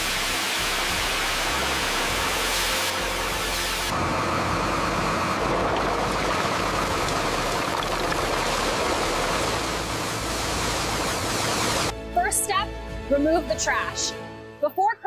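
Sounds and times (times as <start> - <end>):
coal pouring from truck: 5.0 - 11.9.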